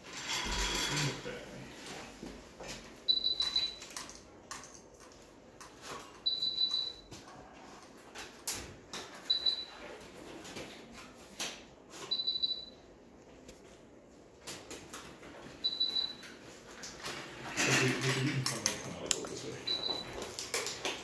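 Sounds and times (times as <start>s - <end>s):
monitor beeping: 3.0s - 4.0s, 6.2s - 7.1s, 9.2s - 9.8s, 12.1s - 12.9s, 15.6s - 16.4s, 19.5s - 20.4s.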